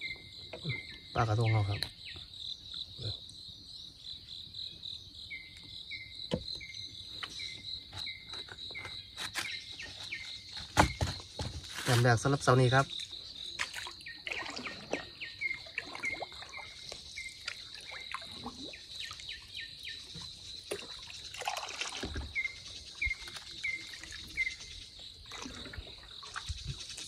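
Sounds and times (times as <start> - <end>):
water trickling and splashing: 8.0 - 27.0
high insect drone: 15.2 - 27.0.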